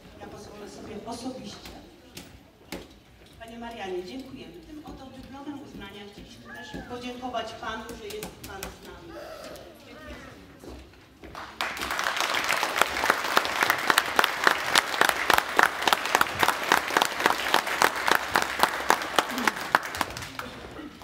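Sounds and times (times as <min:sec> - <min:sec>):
audience applauding: 0:11.4 - 0:21.0.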